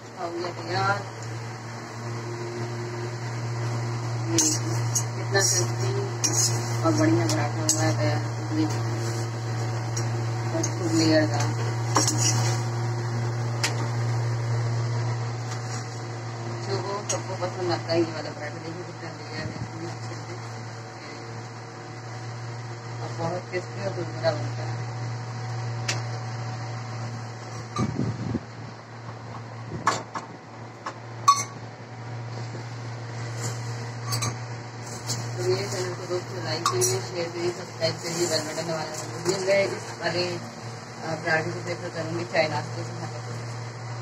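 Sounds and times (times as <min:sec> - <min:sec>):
low kitchen hum: 0:00.0 - 0:44.0
metal utensils clinking on griddle: 0:06.2 - 0:06.6, 0:12.0 - 0:12.6.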